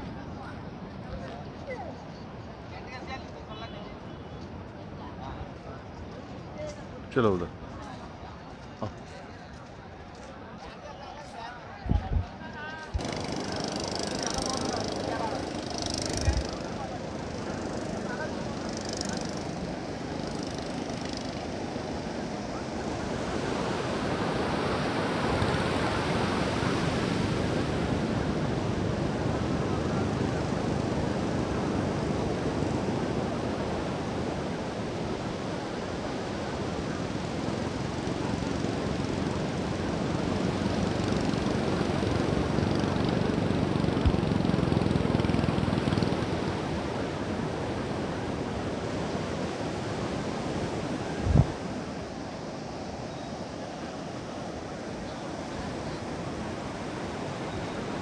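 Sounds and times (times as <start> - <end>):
sea surf breaking on beach: 12.9 - 58.0.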